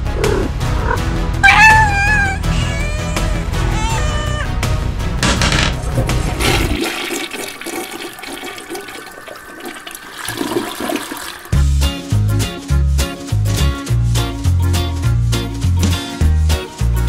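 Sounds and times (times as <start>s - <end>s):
toilet flushing: 5.8s - 11.6s.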